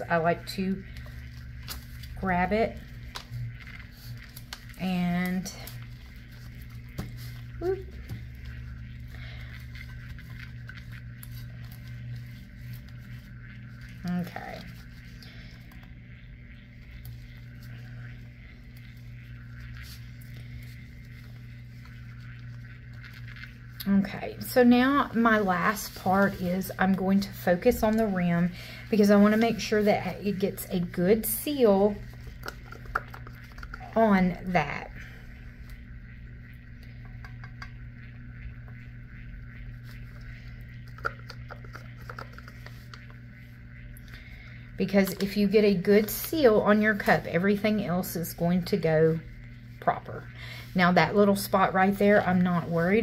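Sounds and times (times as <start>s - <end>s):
rustling of plastic gloves: 0.0s - 34.1s, 39.7s - 47.6s
small electric motor humming: 0.0s - 53.0s
stir stick clicking on plastic cup: 41.0s - 43.1s.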